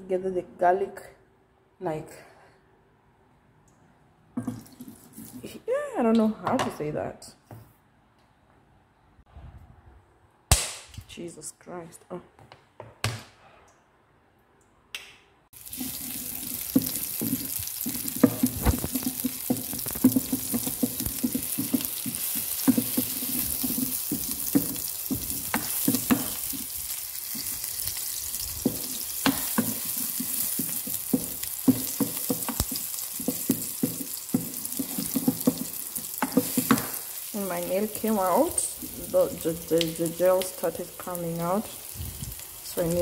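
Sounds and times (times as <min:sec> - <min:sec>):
spatula scraping and knocking pan: 0:15.6 - 0:40.0
onions sizzling in oil: 0:15.6 - 0:43.0.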